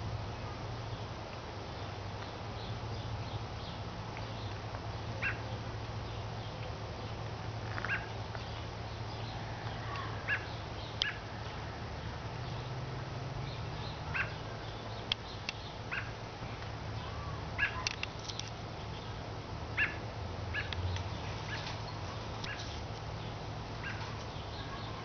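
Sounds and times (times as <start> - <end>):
steady low hum: 0.0 - 25.0
sharp animal alarm calls: 5.2 - 5.4, 7.9 - 8.2, 9.8 - 11.3, 14.0 - 14.5, 15.8 - 16.2, 17.6 - 18.0, 19.8 - 20.8, 22.4 - 22.8, 23.8 - 25.0.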